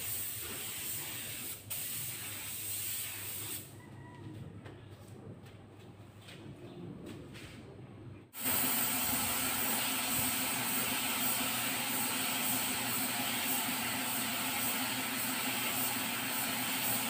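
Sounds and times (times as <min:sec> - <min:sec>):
paint spray gun hissing: 0:00.0 - 0:03.6, 0:08.4 - 0:17.0.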